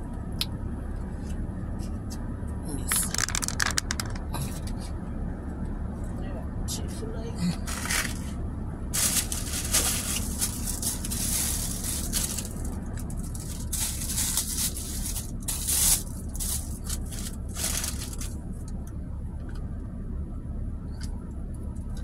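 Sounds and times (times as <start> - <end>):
low hum: 0.0 - 22.0
plastic wrapping rustling: 3.0 - 4.2, 7.6 - 18.4.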